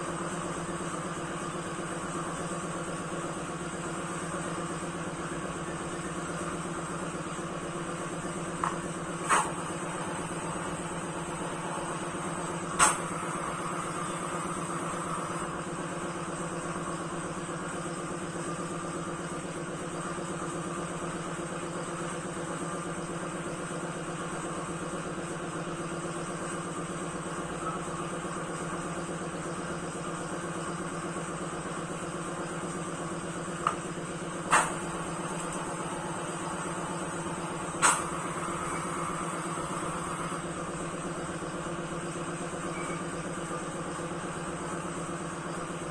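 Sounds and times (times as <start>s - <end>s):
machine hum: 0.0s - 19.4s, 31.6s - 45.9s
sharp bursts of air from valves: 9.2s - 15.5s, 34.5s - 40.5s.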